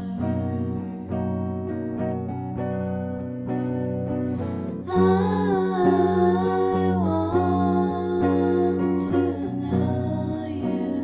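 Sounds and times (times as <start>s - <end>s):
music with plucked notes: 0.0s - 11.0s
wavering vocal melody: 4.8s - 11.0s.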